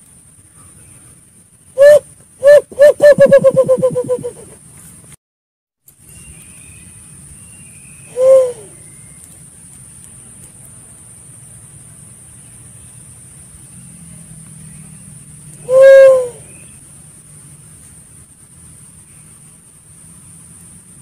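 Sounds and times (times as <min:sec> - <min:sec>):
faint steady hiss: 0:00.0 - 0:05.2, 0:05.8 - 0:21.0
dove cooing: 0:01.8 - 0:04.6, 0:08.1 - 0:08.8, 0:15.6 - 0:16.6.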